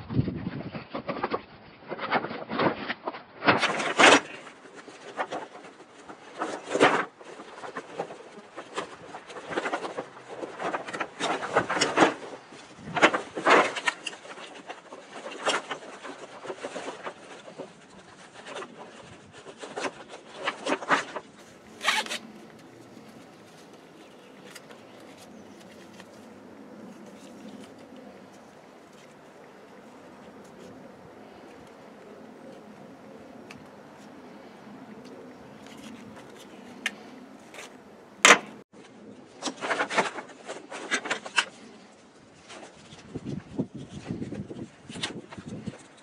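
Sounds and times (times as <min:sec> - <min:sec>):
straps scraping through buckles: 0:05.0 - 0:30.8.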